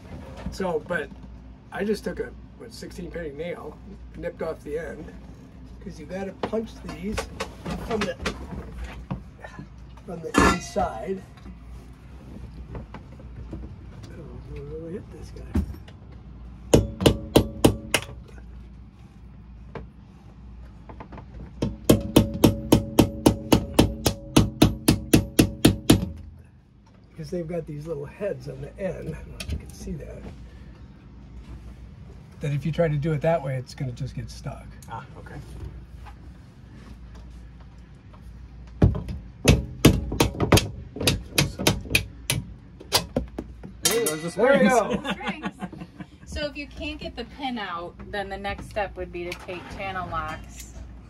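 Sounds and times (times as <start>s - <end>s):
hammer tapping metal nail: 16.8s - 18.1s, 21.6s - 26.2s, 39.4s - 43.1s
hammer tapping metal punch: 21.6s - 26.2s.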